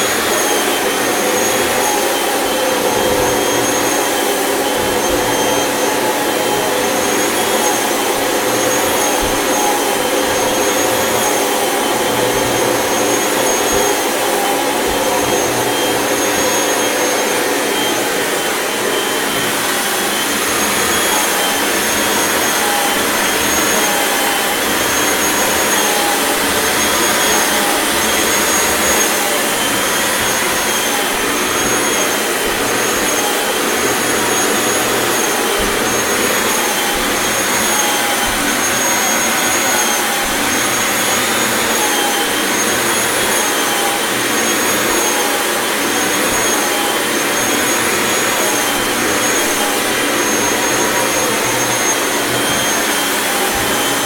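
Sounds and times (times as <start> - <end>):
vacuum cleaner running: 0.0 - 54.0.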